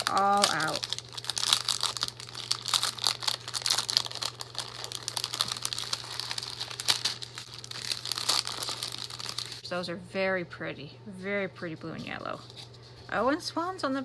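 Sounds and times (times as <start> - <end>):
paper rustling: 0.0 - 9.6
plastic bag crinkling: 0.0 - 9.7.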